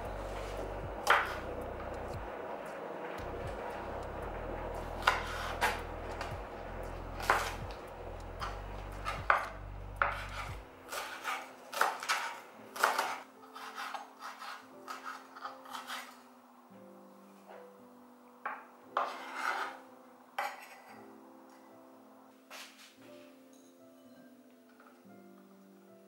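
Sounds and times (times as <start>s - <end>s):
quiet background music: 0.0s - 26.0s
knife chopping on wooden board: 1.0s - 1.4s, 7.2s - 7.8s, 9.0s - 16.0s.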